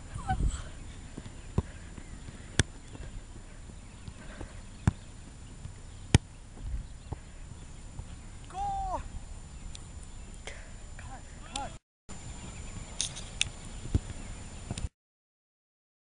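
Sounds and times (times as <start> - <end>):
soccer ball kicked: 1.1 - 3.1, 4.0 - 7.3, 13.8 - 14.8
person calling: 8.5 - 9.2, 11.0 - 11.8.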